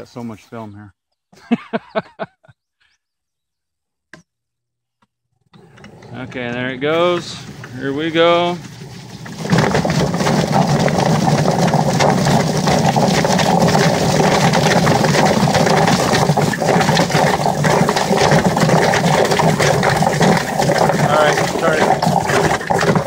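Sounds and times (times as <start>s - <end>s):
drum chicken plucker running: 5.6s - 23.0s.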